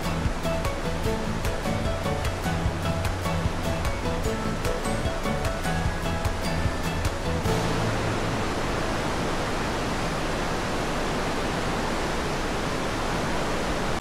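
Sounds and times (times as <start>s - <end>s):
ship wake rushing hiss: 0.0s - 14.0s.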